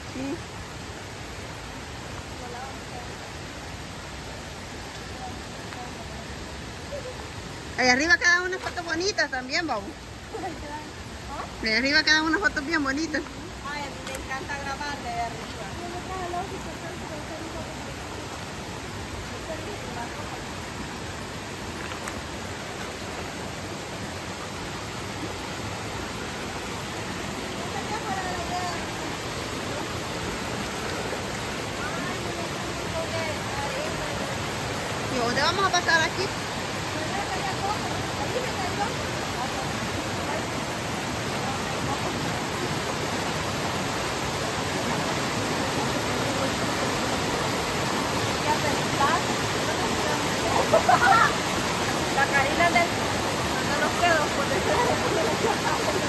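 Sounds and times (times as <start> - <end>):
creek running over rocks: 0.0 - 56.0
faint click: 14.0 - 14.3.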